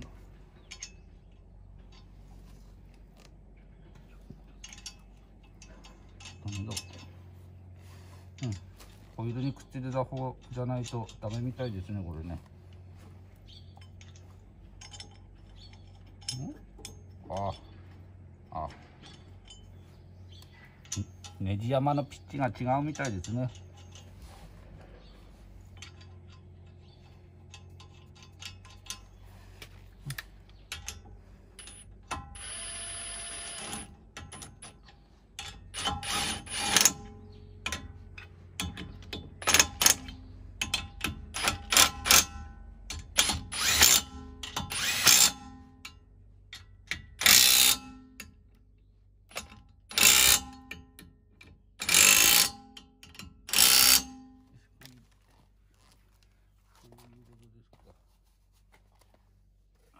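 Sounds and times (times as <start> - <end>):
metal nuts clinking: 0.6 - 2.3, 3.9 - 7.6, 8.3 - 11.7, 13.5 - 17.8, 18.6 - 24.2, 25.0 - 29.2, 30.0 - 48.6, 49.2 - 54.5
impact wrench hammering nuts: 31.6 - 48.4, 49.3 - 54.4.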